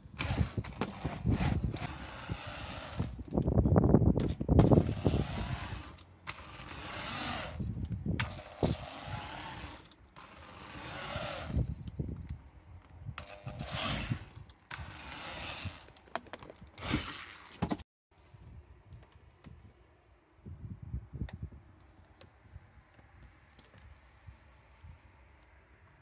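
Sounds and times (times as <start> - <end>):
electric drill whining: 13.2 - 16.0.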